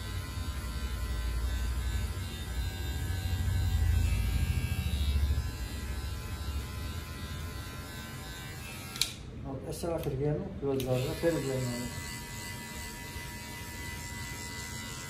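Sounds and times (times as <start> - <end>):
electric hair clipper buzzing: 0.0 - 15.0.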